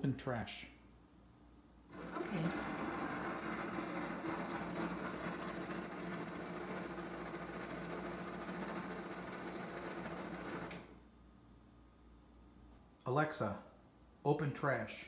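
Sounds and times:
electric motor humming: 1.9 - 10.9.

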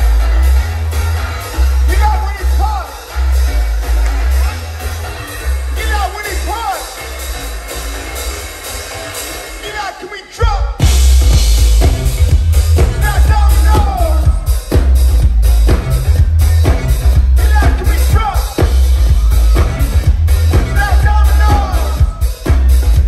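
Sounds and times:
live rock band playing: 0.0 - 23.0
steady drum beat: 10.4 - 23.0.

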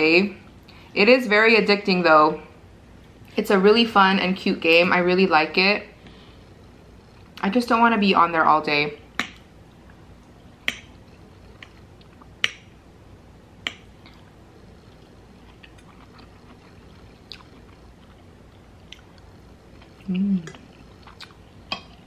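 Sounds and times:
quiet chewing: 13.6 - 22.0.

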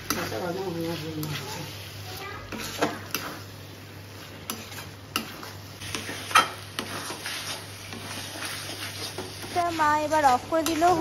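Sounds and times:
soft sizzling: 0.0 - 11.0
spatula scraping metal pan: 2.5 - 3.5, 4.1 - 11.0.

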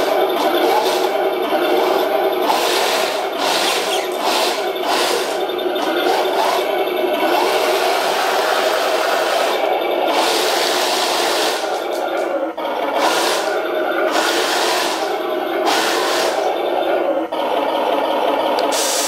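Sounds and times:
metal tracks on wooden floor: 0.0 - 9.3
model tank motors whirring: 0.0 - 19.0.

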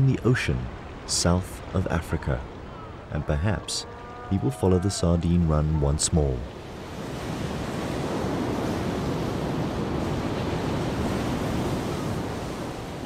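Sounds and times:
surf breaking on rocks: 6.4 - 13.0.

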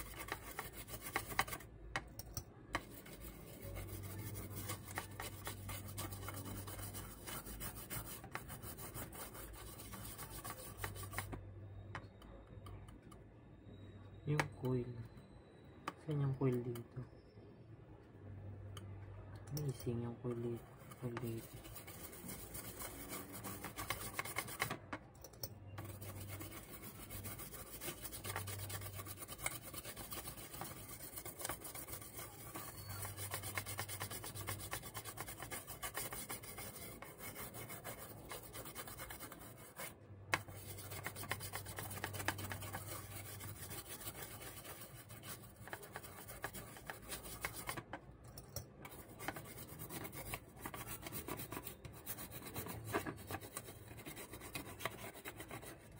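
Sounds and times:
stiff brush scrubbing circuit board: 0.0 - 1.7, 2.8 - 11.4, 20.3 - 24.8, 25.8 - 47.9, 48.9 - 55.9.

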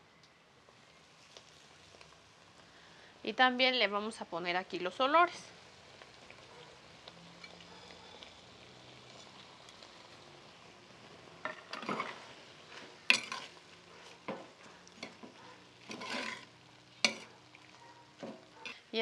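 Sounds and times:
tomatoes and chiles sizzling: 0.0 - 19.0
spatula stirring and scraping: 7.3 - 10.1, 11.4 - 18.9.

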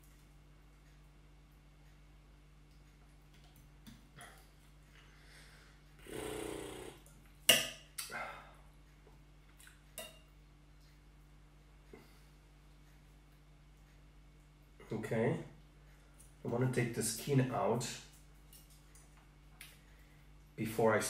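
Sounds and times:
cutlery tapping on a plate: 10.0 - 10.3.

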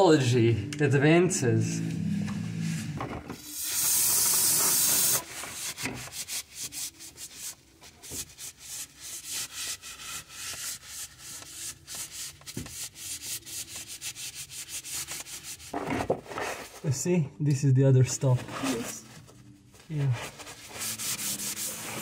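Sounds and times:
loud steady hiss: 3.6 - 5.2
paper towel rubbing metal: 3.8 - 15.8, 18.2 - 19.2, 19.8 - 22.0.

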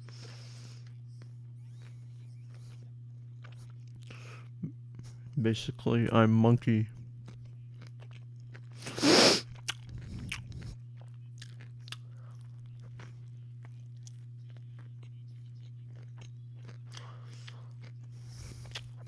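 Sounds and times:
steady low hum: 0.0 - 19.0
chewing with mouth clicks: 0.8 - 5.4, 7.0 - 19.0
sandwich crunch: 6.7 - 19.0.

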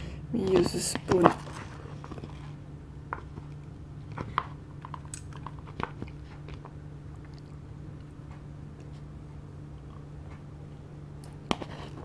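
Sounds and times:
quiet chewing: 1.4 - 9.1.

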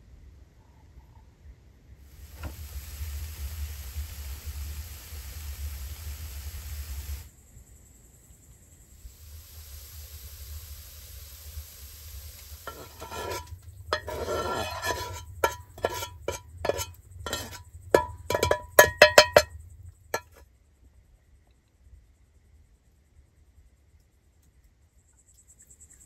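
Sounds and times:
metal utensil scraping a pan: 12.7 - 19.5, 20.1 - 20.4.

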